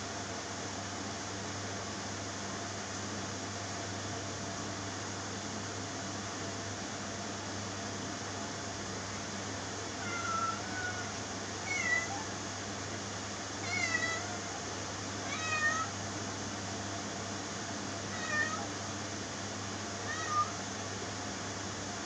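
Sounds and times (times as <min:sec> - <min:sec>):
cat meowing: 0:10.0 - 0:12.3, 0:13.6 - 0:14.6, 0:15.2 - 0:16.0, 0:18.1 - 0:18.7, 0:20.0 - 0:20.6.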